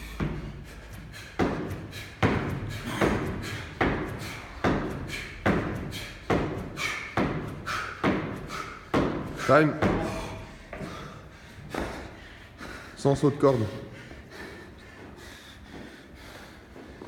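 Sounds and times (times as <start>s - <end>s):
feet thudding on a box: 0.0s - 12.2s.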